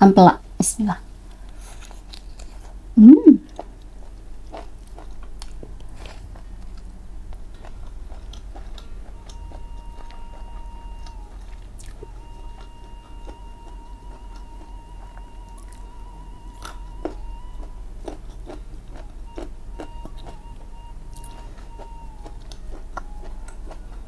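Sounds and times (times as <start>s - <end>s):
faint background music: 0.0s - 24.0s
close chewing: 1.3s - 2.8s, 3.4s - 24.0s
person humming mm: 3.0s - 3.5s.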